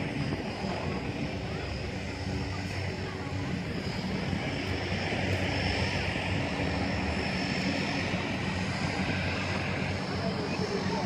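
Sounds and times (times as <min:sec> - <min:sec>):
propeller aircraft engine drone: 0:00.0 - 0:11.0.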